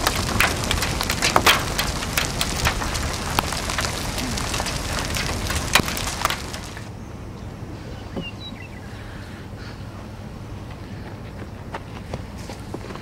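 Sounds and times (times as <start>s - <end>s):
rain pattering on windshield: 0.0s - 6.9s
low rumble: 0.0s - 7.0s.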